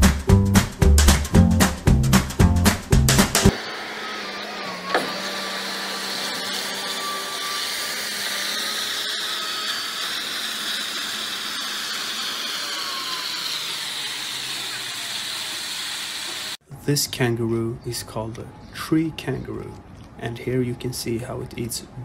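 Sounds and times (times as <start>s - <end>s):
excavator mechanical whine: 3.5s - 16.6s.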